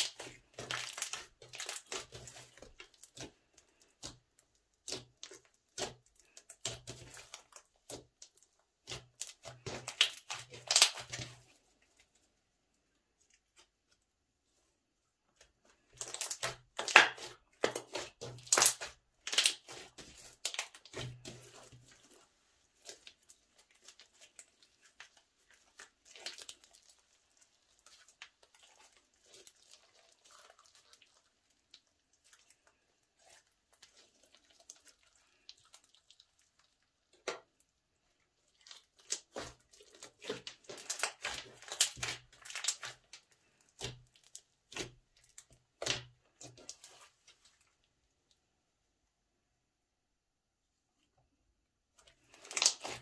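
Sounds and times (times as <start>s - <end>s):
slime crackling and popping: 0.0s - 11.5s, 15.9s - 22.2s, 22.8s - 37.5s, 38.6s - 47.4s, 52.2s - 53.0s.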